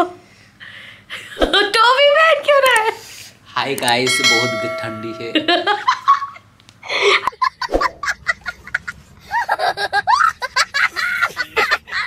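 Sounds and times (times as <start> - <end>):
person laughing: 5.4 - 12.0.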